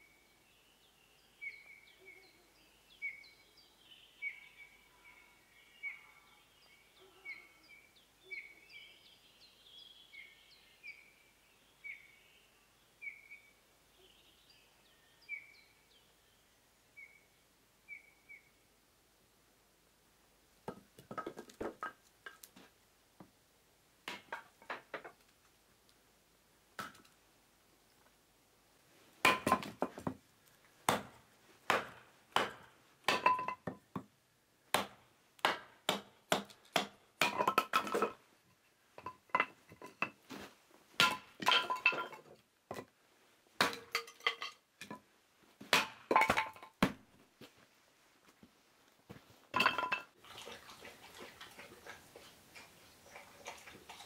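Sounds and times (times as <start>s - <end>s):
axe chopping wood: 26.8s - 27.0s, 29.2s - 30.1s, 30.9s - 33.8s, 34.7s - 38.2s, 41.0s - 42.1s, 43.6s - 44.0s, 45.6s - 47.0s
sticks clinking and clattering: 39.0s - 40.2s, 41.0s - 42.4s, 43.8s - 45.0s.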